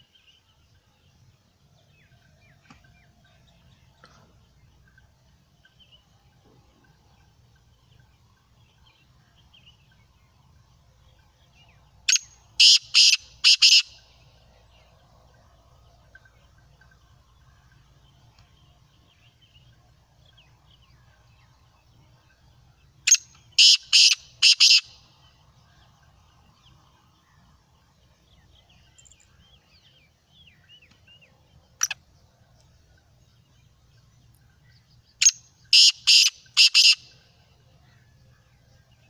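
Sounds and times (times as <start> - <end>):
bird harsh grating call: 12.6 - 13.9, 23.1 - 24.9, 35.7 - 37.0.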